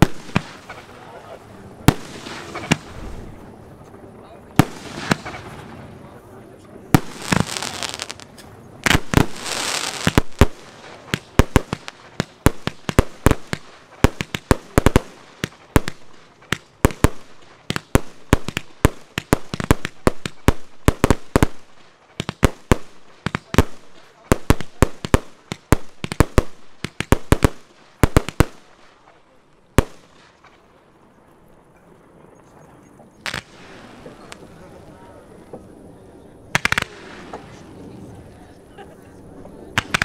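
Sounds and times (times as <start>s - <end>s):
firework hissing rush: 0.0s - 3.4s, 4.6s - 5.8s, 6.9s - 16.1s
firework bangs: 0.0s - 3.6s, 4.5s - 6.2s, 6.8s - 30.6s, 33.2s - 35.6s, 36.5s - 37.8s, 39.7s - 40.0s.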